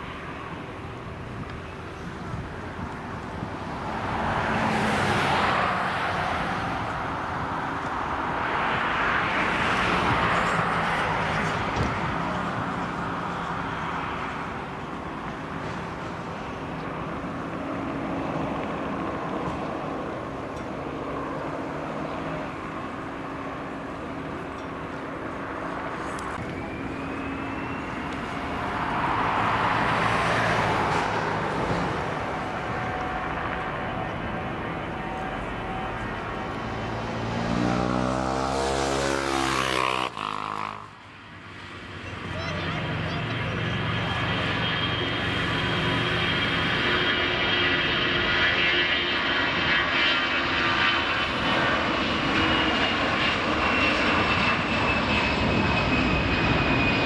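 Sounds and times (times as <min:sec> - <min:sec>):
jet engines of taxiing airliner: 0:00.0 - 0:40.2, 0:40.8 - 0:57.0
jet engines spooling up: 0:18.2 - 0:38.0.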